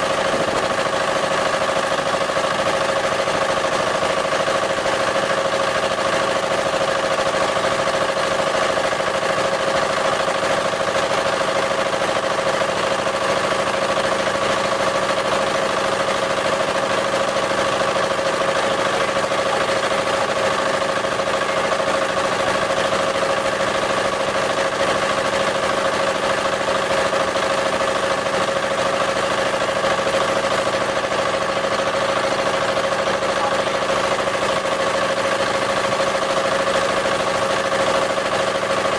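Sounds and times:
boat engine droning: 0.0s - 2.8s, 13.8s - 24.8s, 28.2s - 35.7s.

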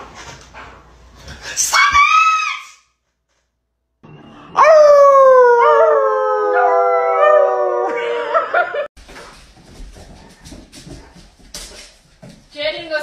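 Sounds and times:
dog howling: 4.5s - 8.5s
man howling: 4.5s - 8.5s.

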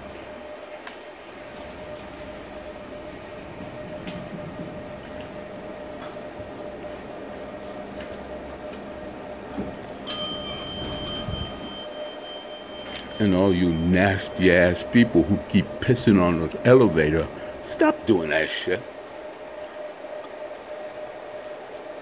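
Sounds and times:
station hum and low rumble: 0.0s - 22.0s
elevator electronic tone: 1.3s - 7.3s, 8.6s - 18.5s.

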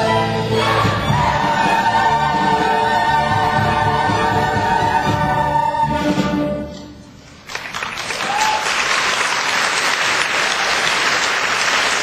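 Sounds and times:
choir and orchestra chord: 0.0s - 6.7s
audience applause: 7.4s - 12.0s.

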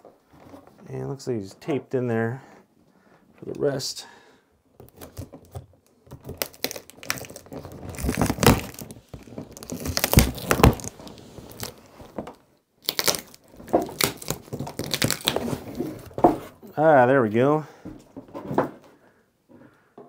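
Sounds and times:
tape tearing: 4.8s - 12.1s, 12.8s - 16.3s
packaging crinkling: 4.8s - 12.2s, 12.8s - 16.2s.

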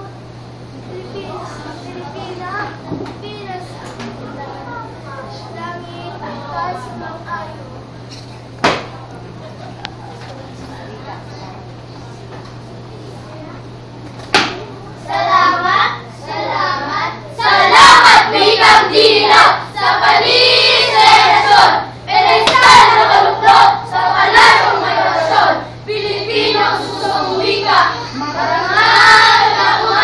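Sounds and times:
children singing in unison: 16.4s - 30.0s.

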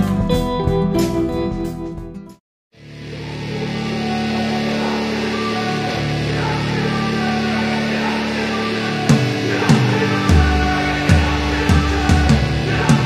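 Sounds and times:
bass line: 0.0s - 13.0s
electric guitar chords: 0.0s - 13.0s
heavy drum beat: 9.1s - 13.0s.

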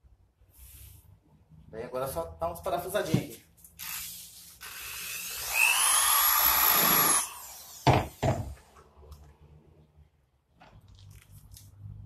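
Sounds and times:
cordless drill whining: 3.8s - 8.2s.

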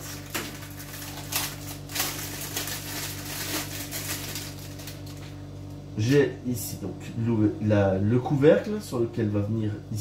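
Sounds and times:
plastic bag crinkling: 0.0s - 5.5s.

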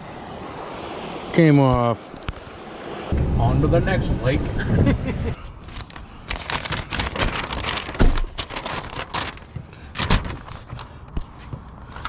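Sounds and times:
paper map rustling and crinkling: 5.5s - 12.0s.

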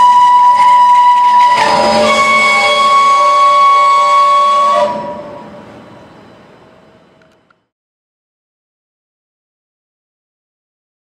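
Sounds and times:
train brakes squealing: 0.0s - 7.5s.

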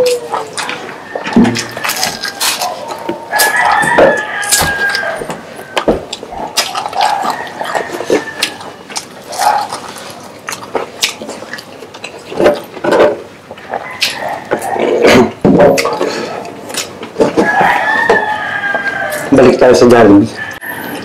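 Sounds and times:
fingers being licked: 0.0s - 0.9s, 4.4s - 12.2s
wet chewing and lip-smacking: 0.0s - 15.0s, 15.7s - 19.3s.

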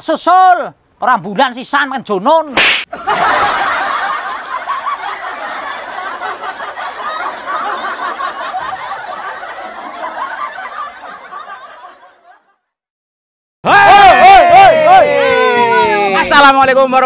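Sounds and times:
crowd laughing: 2.9s - 12.8s, 13.9s - 16.2s.

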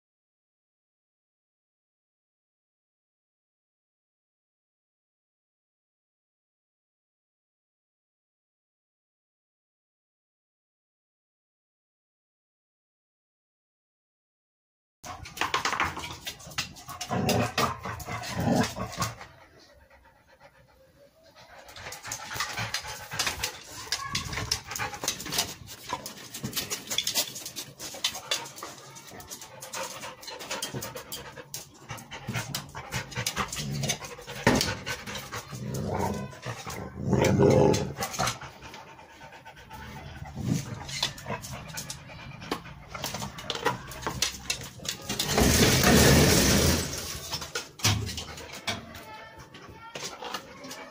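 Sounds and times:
dog panting: 16.1s - 37.0s, 37.7s - 44.8s.

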